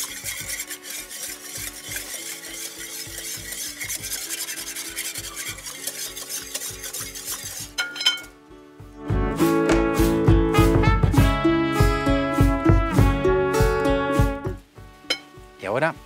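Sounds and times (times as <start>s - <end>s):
whisk clicking against glass bowl: 0.0s - 8.2s.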